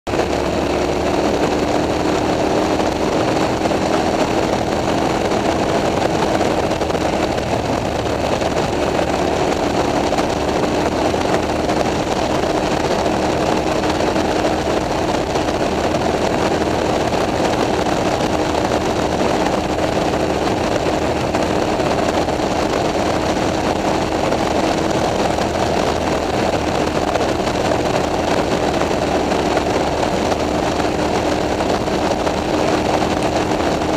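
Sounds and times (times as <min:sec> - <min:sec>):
motorcycle engine cruising: 0:00.1 - 0:33.9.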